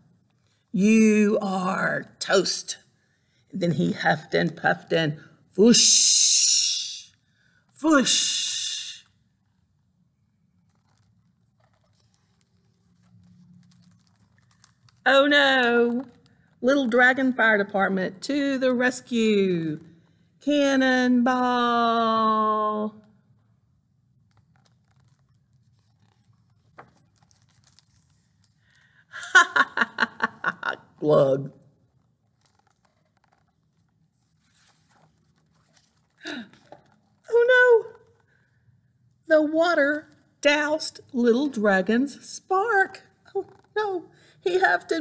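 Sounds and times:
paper pages rustling: 0:10.6 - 0:15.1, 0:24.1 - 0:29.0, 0:31.9 - 0:37.3
person laughing: 0:29.1 - 0:30.9.

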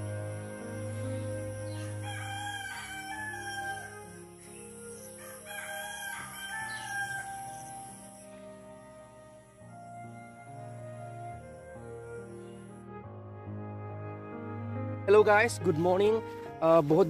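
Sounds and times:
soft background music: 0:00.0 - 0:17.0
rooster crowing: 0:01.5 - 0:08.2.

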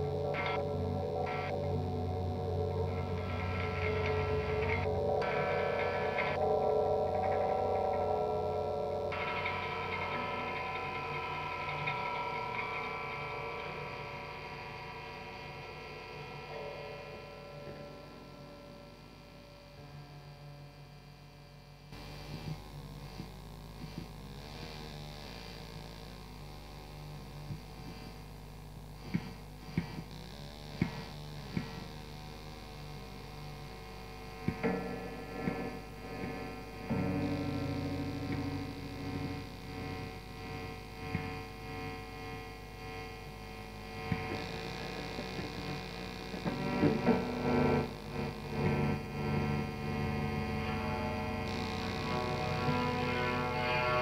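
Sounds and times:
droning tone: 0:00.0 - 0:54.0
low electronic hum: 0:00.0 - 0:54.0
clicks and crackles: 0:33.2 - 0:50.8.

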